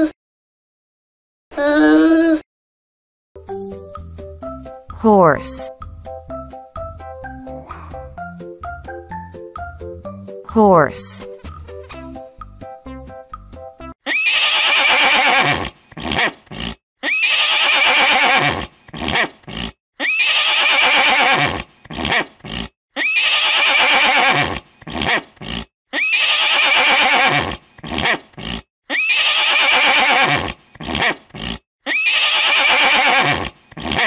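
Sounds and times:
horse neighing: 0:14.1 - 0:34.0.

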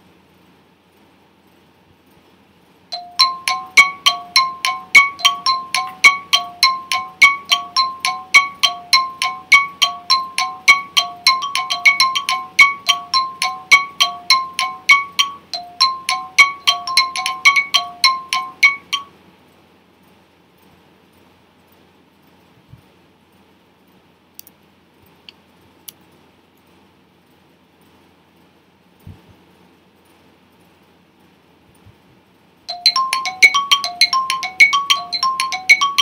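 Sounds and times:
countdown timer tick-tock: 0:03.0 - 0:19.1, 0:32.7 - 0:36.0.

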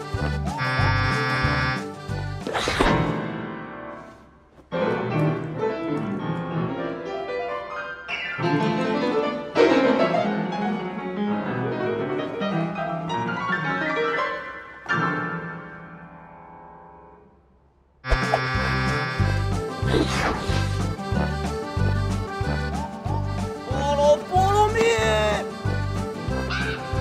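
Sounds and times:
classical piano piece: 0:04.7 - 0:17.2.

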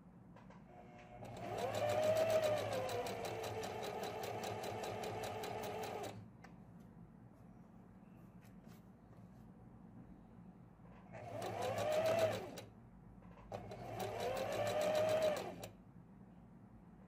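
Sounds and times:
sewing machine stitching: 0:01.2 - 0:06.2, 0:11.1 - 0:12.7, 0:13.5 - 0:15.7.

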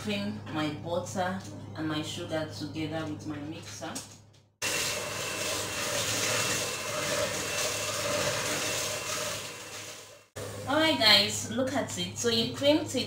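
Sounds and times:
electric hand mixer running: 0:04.6 - 0:10.7.

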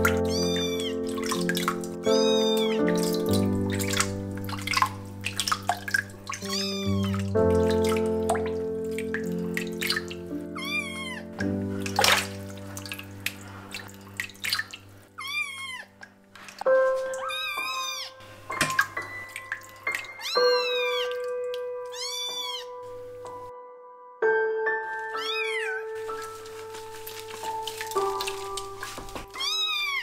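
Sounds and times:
kitten meowing: 0:00.0 - 0:03.2, 0:06.4 - 0:07.3, 0:10.5 - 0:11.4, 0:15.1 - 0:15.9, 0:17.1 - 0:18.2, 0:20.2 - 0:21.2, 0:21.9 - 0:22.8, 0:25.0 - 0:26.0, 0:29.3 - 0:30.0
background music with held notes: 0:00.0 - 0:30.0.

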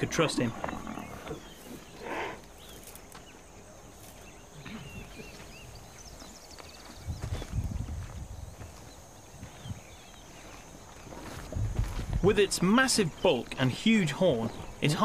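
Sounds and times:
faint bird chirps: 0:00.0 - 0:11.4.

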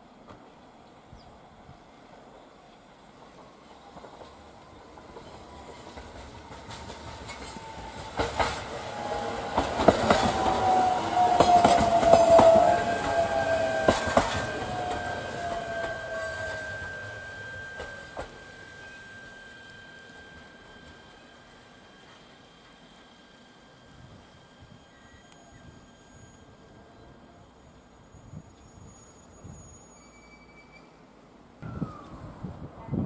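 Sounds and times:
electric train passing: 0:00.0 - 0:33.0
wheels clicking over rail joints: 0:03.2 - 0:08.8, 0:09.5 - 0:22.8
falling whine: 0:07.0 - 0:29.5, 0:31.6 - 0:32.8.

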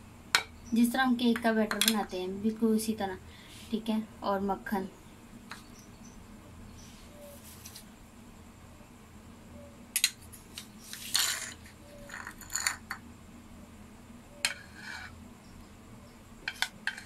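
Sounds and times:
metal spoon clinking and scraping: 0:11.1 - 0:12.9.

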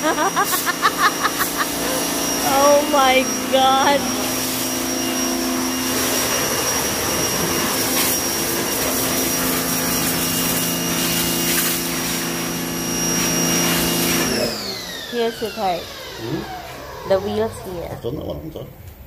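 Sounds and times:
water jet spraying hiss: 0:00.0 - 0:04.9, 0:05.9 - 0:14.4
pressure washer motor whining: 0:00.0 - 0:18.3.

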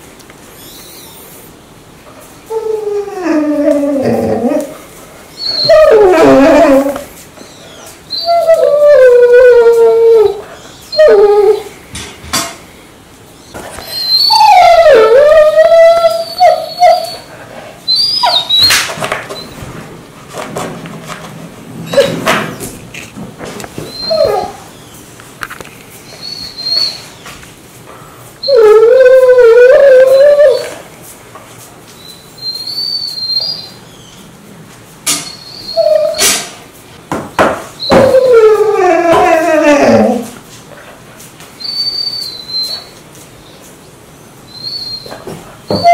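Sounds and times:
dog whining: 0:00.5 - 0:01.6, 0:02.5 - 0:11.8, 0:13.4 - 0:19.8, 0:21.8 - 0:22.6, 0:23.5 - 0:25.0, 0:26.0 - 0:27.3, 0:28.4 - 0:30.9, 0:32.0 - 0:34.4, 0:35.1 - 0:36.6, 0:37.6 - 0:40.4, 0:41.6 - 0:45.9
dog squeak: 0:05.4 - 0:08.5, 0:13.8 - 0:17.3, 0:17.9 - 0:18.8, 0:23.9 - 0:24.6, 0:26.1 - 0:27.0, 0:32.0 - 0:33.8, 0:35.2 - 0:36.4, 0:37.8 - 0:38.4, 0:41.6 - 0:42.9, 0:44.5 - 0:45.1.

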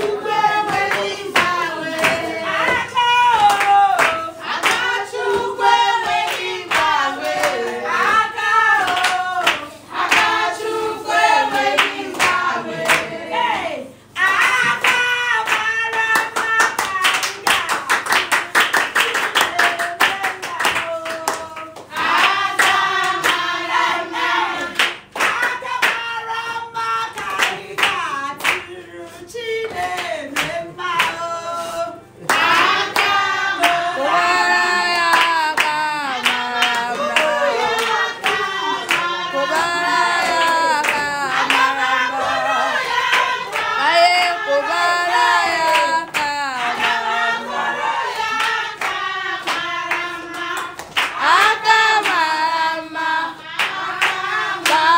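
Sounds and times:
hand clapping: 0:00.0 - 0:08.2, 0:08.8 - 0:10.4, 0:11.5 - 0:13.1, 0:14.2 - 0:23.4, 0:24.6 - 0:26.1, 0:27.2 - 0:28.7, 0:29.6 - 0:31.2, 0:35.0 - 0:43.8, 0:48.2 - 0:54.9
group singing: 0:00.0 - 0:54.9.

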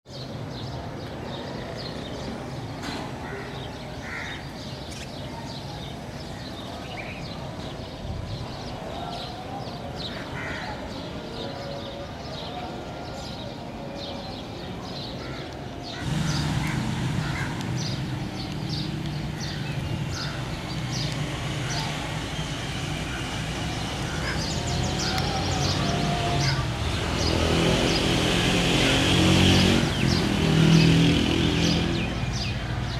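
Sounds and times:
small birds chirping: 0:00.1 - 0:32.9
crows cawing: 0:03.2 - 0:04.5, 0:10.1 - 0:10.8, 0:15.2 - 0:17.9, 0:24.0 - 0:25.1.

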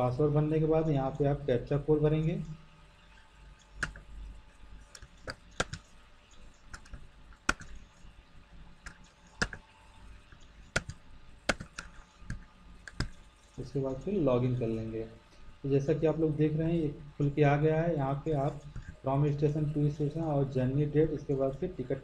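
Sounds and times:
keyboard typing: 0:03.8 - 0:04.0, 0:05.0 - 0:05.9, 0:06.7 - 0:07.9, 0:08.8 - 0:09.6, 0:10.4 - 0:13.2, 0:18.5 - 0:19.0.

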